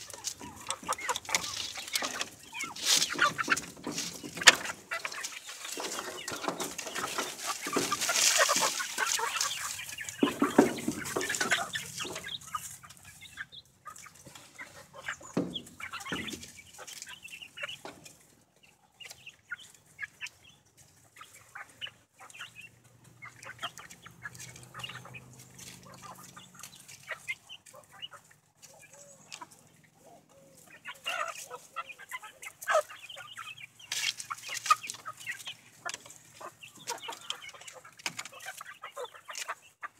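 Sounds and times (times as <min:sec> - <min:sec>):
loud rustling: 0:00.0 - 0:12.3
chickens clucking: 0:00.0 - 0:39.9.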